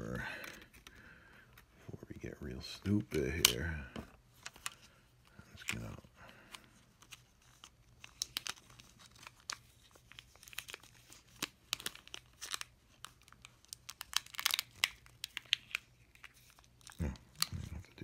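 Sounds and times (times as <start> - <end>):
plastic crinkling and rustling: 4.3 - 18.0.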